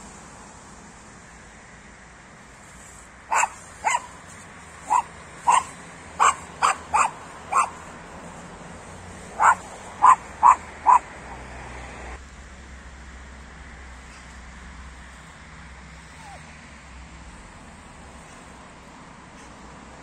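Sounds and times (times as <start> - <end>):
dog barking: 3.3 - 8.4, 9.1 - 11.5.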